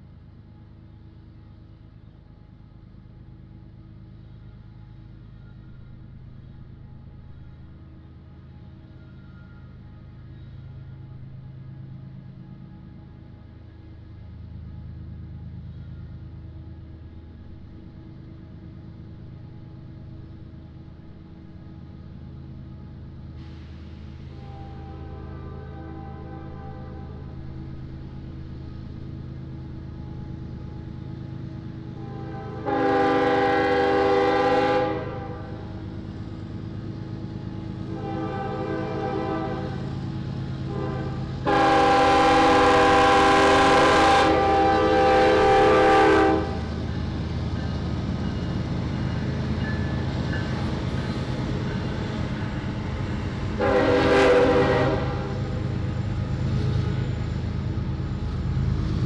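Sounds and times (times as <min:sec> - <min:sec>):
locomotive engine rumble: 0:00.0 - 0:59.0
locomotive horn blasts: 0:24.3 - 0:27.3, 0:32.0 - 0:35.6, 0:37.8 - 0:39.9, 0:40.7 - 0:46.7, 0:53.6 - 0:55.6.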